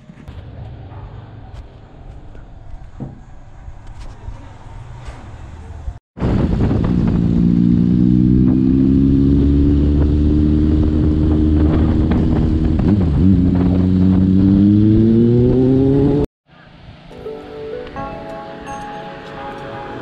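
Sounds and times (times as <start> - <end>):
motorcycle engine riding: 6.2 - 16.3.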